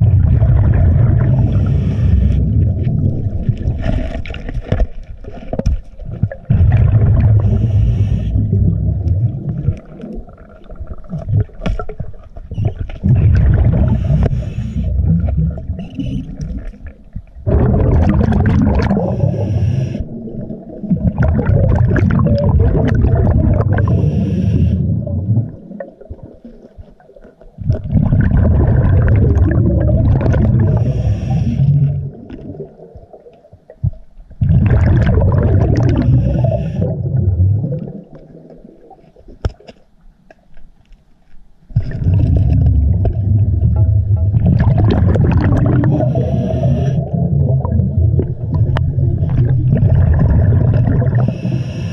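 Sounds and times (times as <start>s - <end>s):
exhaled bubbles rumbling: 0.0s - 39.6s, 41.7s - 51.9s
regulator inhaling hiss: 1.4s - 2.4s, 7.4s - 8.4s, 13.9s - 15.0s, 19.0s - 20.1s, 23.8s - 24.8s, 30.7s - 31.8s, 36.0s - 36.9s, 45.9s - 47.0s, 51.2s - 51.9s.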